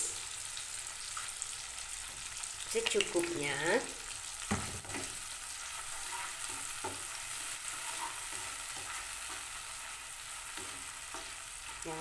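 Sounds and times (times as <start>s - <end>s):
food sizzling in hot oil: 0.0s - 12.0s
spatula scraping and knocking pan: 4.4s - 12.0s.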